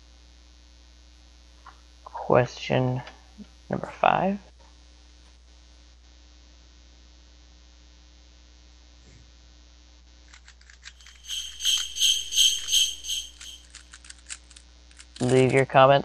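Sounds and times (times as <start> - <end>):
faint steady hum: 0.0 - 16.0
metallic jingling: 11.0 - 14.0.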